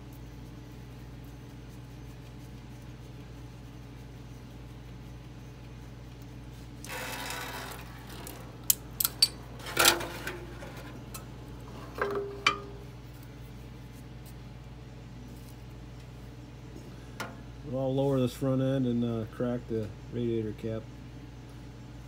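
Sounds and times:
low steady hum: 0.0s - 22.0s
rustle: 15.2s - 16.2s.

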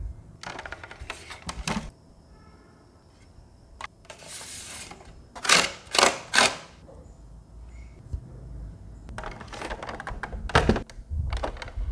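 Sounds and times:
plastic clicks and rustles: 0.4s - 1.9s, 9.1s - 11.9s.

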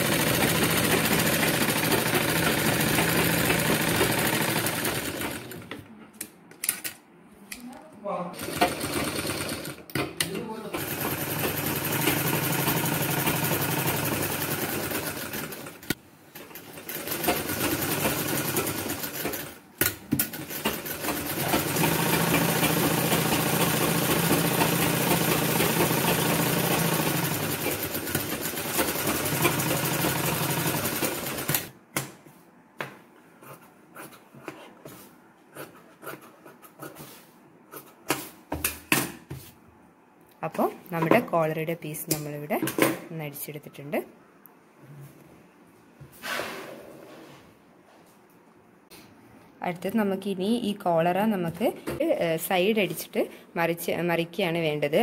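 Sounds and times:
sewing machine stitching: 0.0s - 5.7s, 8.3s - 19.6s, 20.2s - 31.7s.

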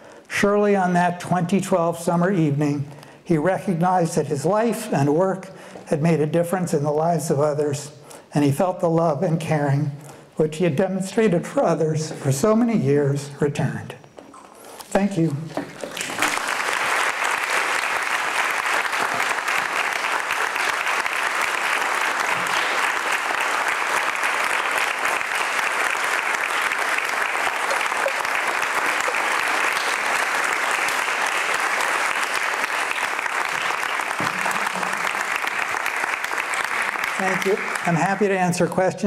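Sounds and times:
audience applauding: 15.6s - 38.7s.

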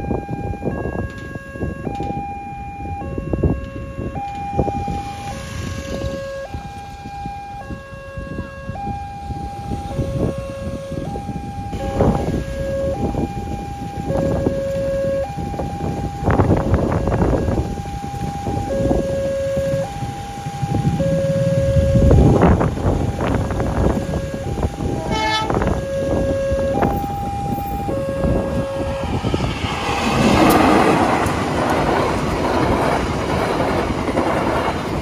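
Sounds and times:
two-tone level crossing alarm: 0.0s - 31.4s
wind buffeting microphone: 0.0s - 35.0s.

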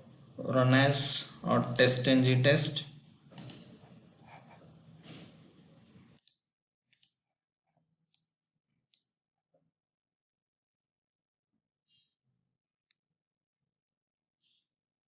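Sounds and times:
faint room hiss: 0.0s - 6.2s
computer mouse clicking: 1.6s - 1.9s, 3.4s - 3.8s, 6.2s - 7.2s.

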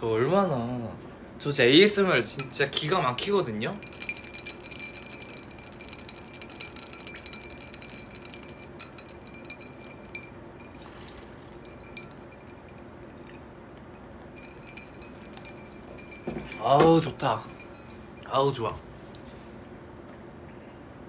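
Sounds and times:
clinks of ceramic bowl: 2.2s - 18.7s
liquid sloshing: 2.3s - 18.3s.

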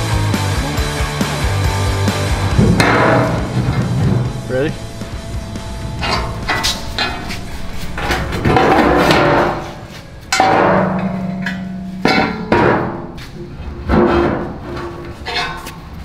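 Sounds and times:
metal scraping rush: 1.2s - 16.0s
sharp metal knocks and clangs: 2.5s - 15.9s.

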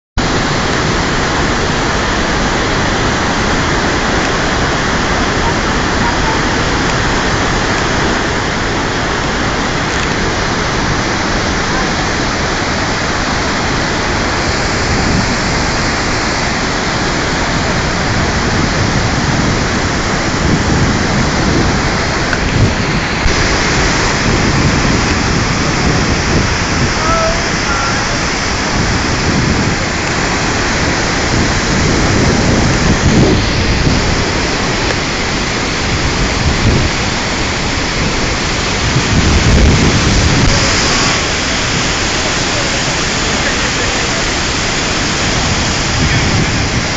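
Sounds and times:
deep water rumbling: 0.2s - 46.9s
waterfall roaring: 0.2s - 46.9s.

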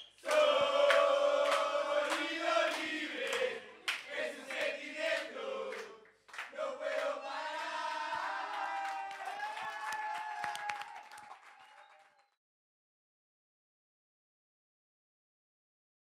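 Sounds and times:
crowd chanting in unison: 0.2s - 9.2s.

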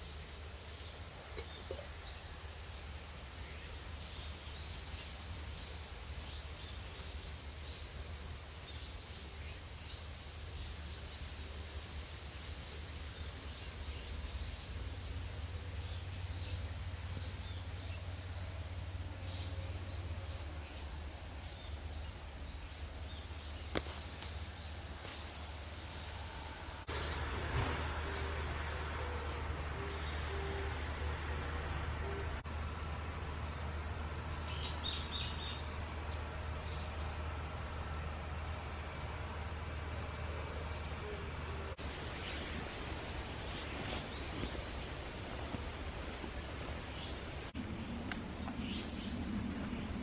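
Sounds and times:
steady low rumble: 31.1s - 50.0s.

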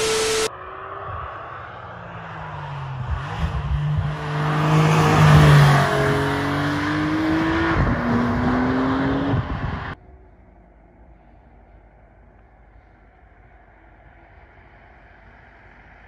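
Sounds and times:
car engine accelerating: 0.0s - 10.0s.

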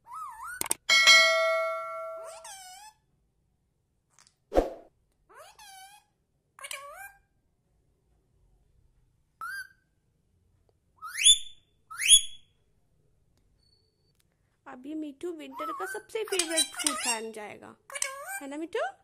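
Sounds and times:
parrot calling: 2.0s - 3.0s, 15.5s - 17.3s
parrot squawks: 2.1s - 3.0s.

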